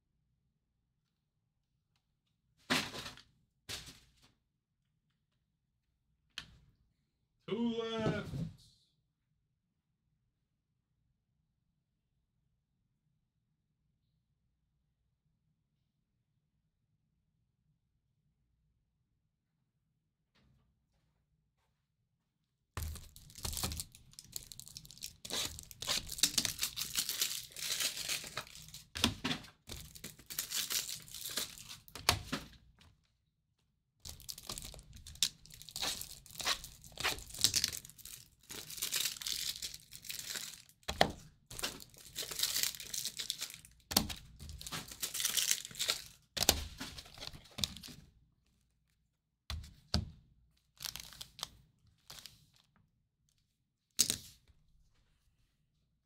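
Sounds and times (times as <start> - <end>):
packaging tearing and crinkling: 22.8 - 28.9, 29.7 - 32.0, 34.1 - 40.9, 41.5 - 47.9.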